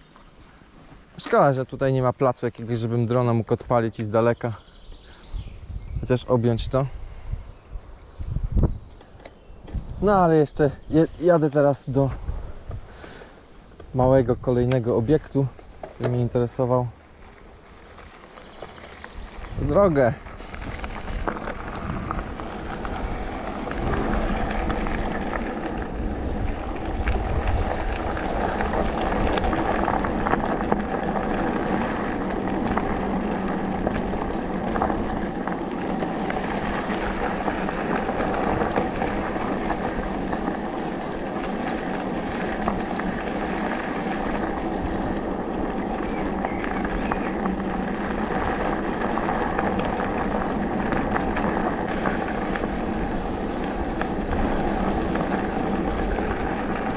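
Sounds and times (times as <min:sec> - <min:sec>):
tyres rumbling over gravel: 0:00.0 - 0:06.9, 0:08.7 - 0:56.9
wind buffeting microphone: 0:05.2 - 0:13.0, 0:17.8 - 0:56.9
electric drive hum: 0:21.3 - 0:56.9.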